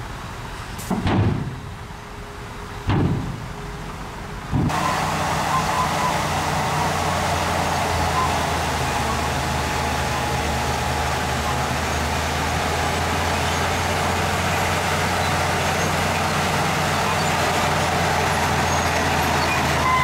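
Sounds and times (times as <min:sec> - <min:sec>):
diesel engine running: 0:00.0 - 0:20.0
heavy thuds: 0:02.9 - 0:03.5.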